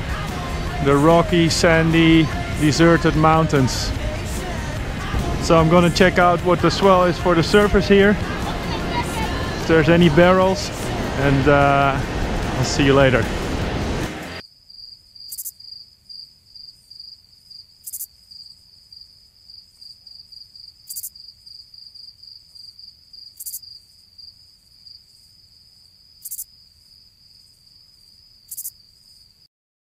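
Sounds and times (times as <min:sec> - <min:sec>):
cricket chirping: 0:14.4 - 0:29.5.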